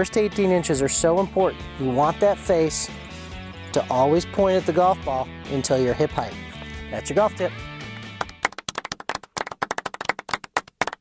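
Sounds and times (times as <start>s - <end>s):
background guitar music: 0.0s - 8.5s
hand clapping: 7.8s - 11.0s.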